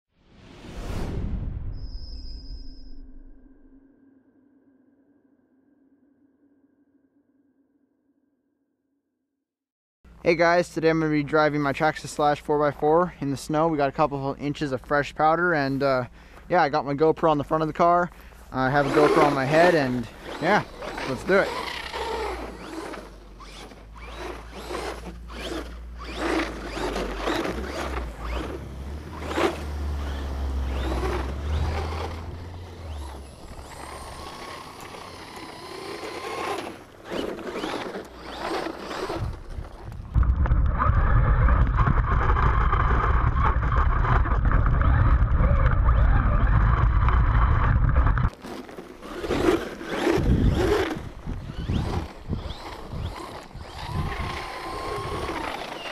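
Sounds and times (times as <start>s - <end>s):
tyres churning through snow: 10.3s - 55.9s
loud steady rumble: 18.5s - 48.3s
toy truck electric motor whining: 18.6s - 55.9s.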